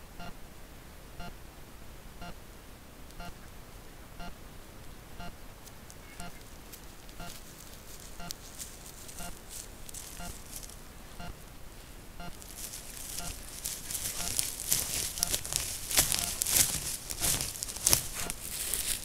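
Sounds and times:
dense crackling rustle: 4.8 - 19.0.

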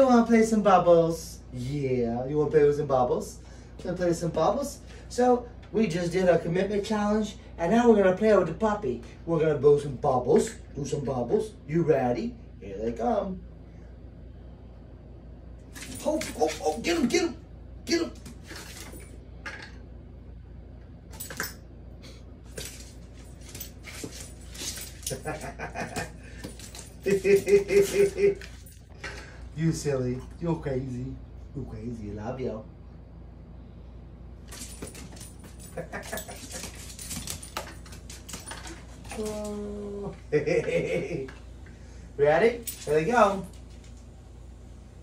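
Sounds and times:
dog claws on wood floor: 15.7 - 17.2, 18.2 - 19.2, 22.5 - 28.7, 34.5 - 39.4
collar tags jingling: 22.5 - 28.9, 34.4 - 39.4, 42.6 - 43.9.

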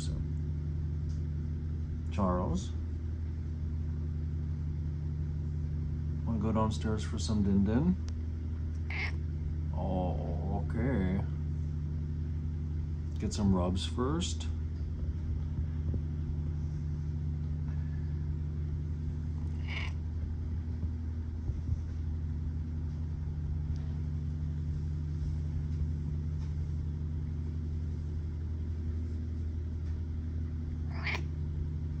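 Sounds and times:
cat purring: 14.8 - 32.0.

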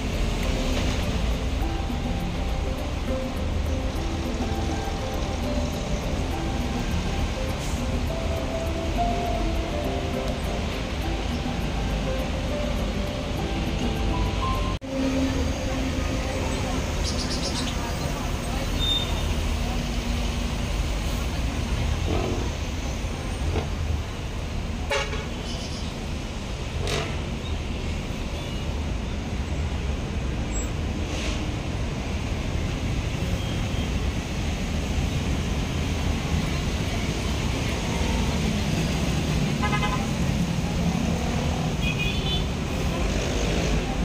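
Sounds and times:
bus engine rumble: 0.0 - 44.0
vehicle horn toots: 24.9 - 25.4, 39.6 - 40.2, 41.8 - 42.5.

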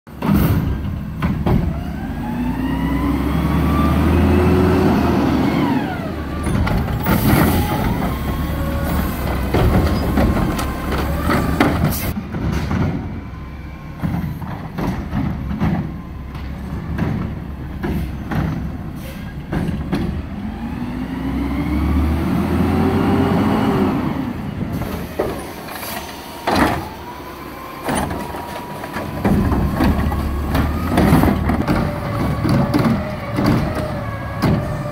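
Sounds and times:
garbage truck engine revving: 0.1 - 34.9
plastic carts clanking and banging: 6.3 - 13.1, 14.0 - 20.3, 24.8 - 27.1, 27.8 - 34.9.

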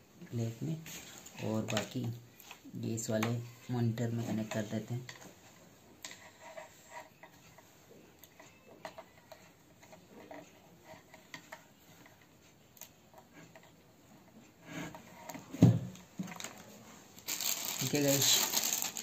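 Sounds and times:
speaker wire clicks and rustles: 15.2 - 19.0.

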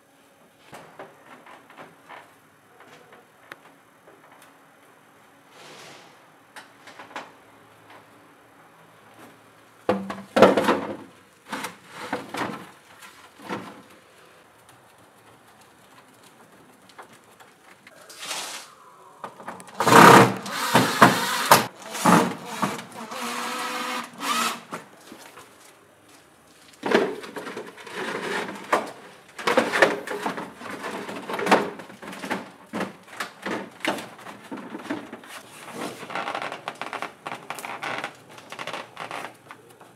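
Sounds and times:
metal roofing sheets rattling: 26.7 - 37.5.

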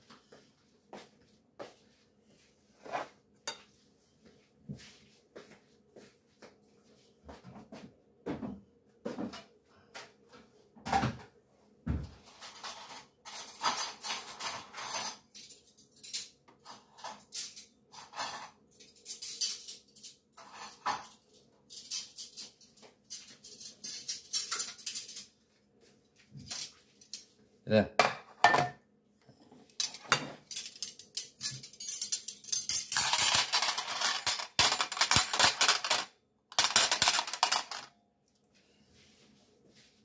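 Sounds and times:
scraping and rustling noises: 0.1 - 7.9, 37.0 - 40.0
dishes and cutlery clattering: 12.2 - 25.4, 28.0 - 28.8, 29.6 - 37.9.

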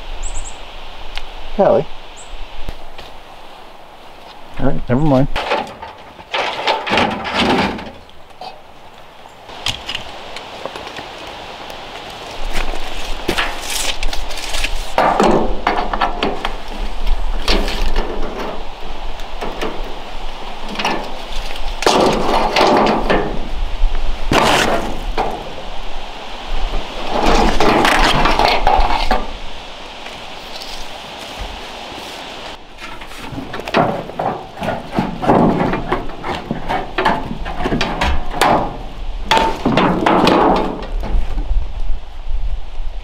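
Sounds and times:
sheet metal crunching and clattering: 5.3 - 8.1, 14.8 - 18.7, 19.4 - 20.0, 20.6 - 23.5, 24.3 - 25.6, 32.8 - 41.3.

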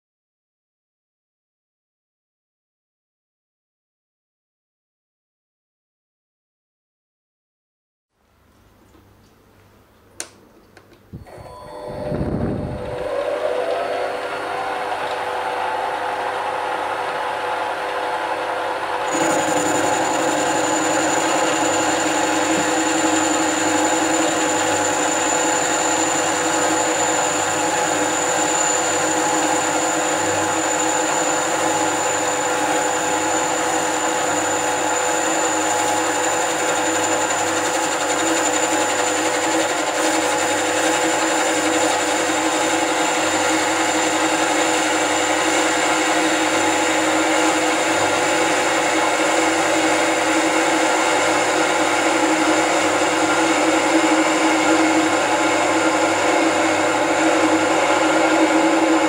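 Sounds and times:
high whine: 11.2 - 35.5
lathe cutting metal: 13.0 - 59.0.

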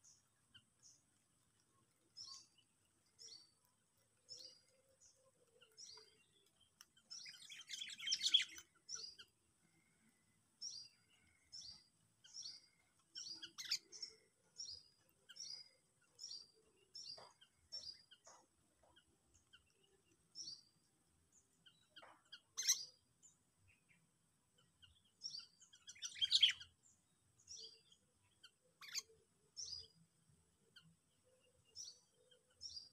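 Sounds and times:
bird chirping: 0.0 - 32.9.

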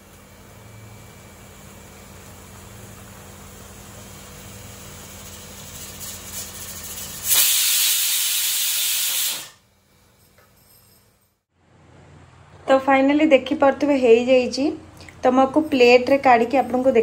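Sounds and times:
pressure cooker whistle hissing: 4.6 - 9.6.

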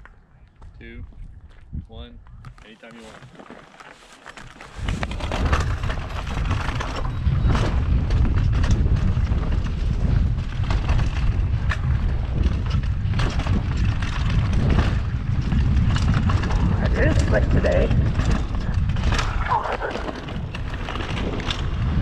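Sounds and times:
wind buffeting microphone: 0.0 - 3.4, 4.0 - 22.0
bike tyres rolling over dirt: 2.5 - 22.0
bike knocks and rattles: 4.3 - 22.0.

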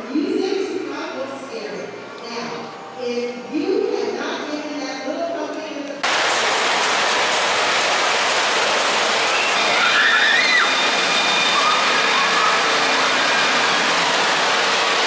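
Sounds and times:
water rushing and splashing: 6.0 - 15.0.

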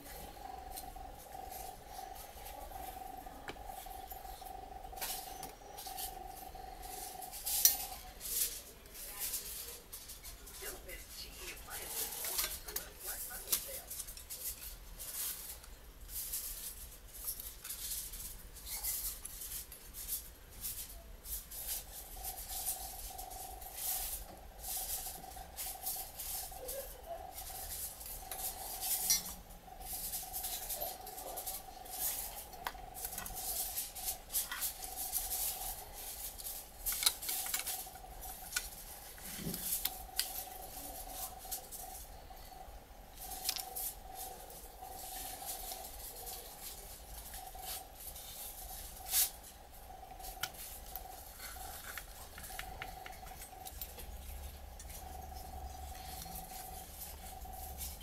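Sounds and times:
faint steady tone: 0.0 - 15.3, 17.4 - 58.0.

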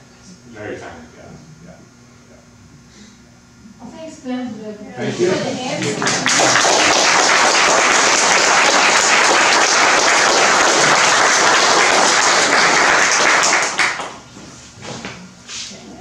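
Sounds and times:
audience applause: 6.0 - 14.2.

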